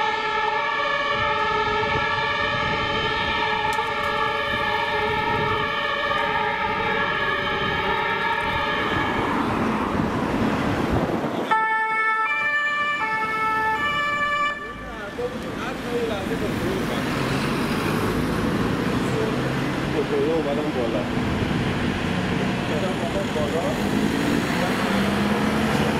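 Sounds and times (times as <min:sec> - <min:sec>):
two-tone emergency sirens: 0:00.0 - 0:10.1, 0:11.4 - 0:15.1
car passing: 0:03.2 - 0:11.6, 0:15.0 - 0:25.9.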